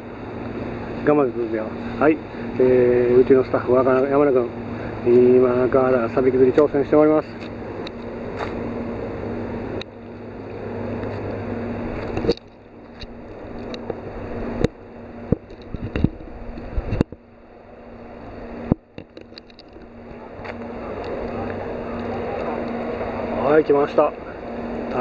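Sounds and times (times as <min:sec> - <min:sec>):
low mechanical hum: 0:00.0 - 0:25.0
water's edge background wash: 0:00.0 - 0:25.0.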